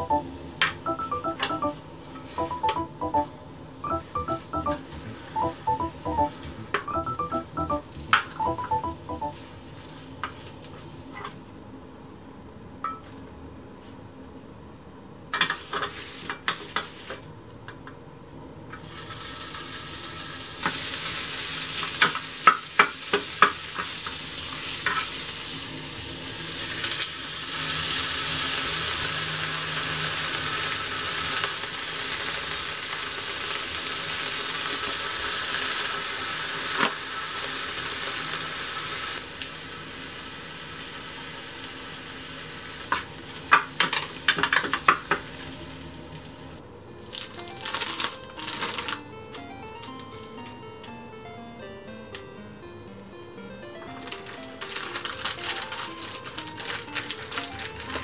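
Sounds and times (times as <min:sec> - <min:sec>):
meat sizzling in a frying pan: 0:18.8 - 0:46.4.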